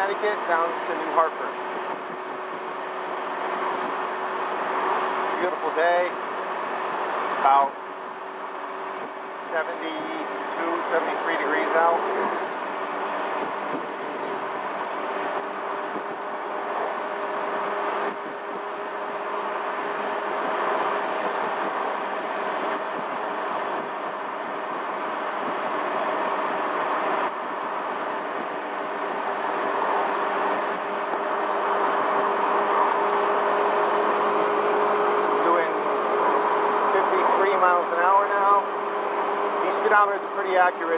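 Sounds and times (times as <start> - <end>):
road noise: 0.0 - 40.9
scooter engine cruising: 10.2 - 39.8
wind rushing: 12.0 - 37.0.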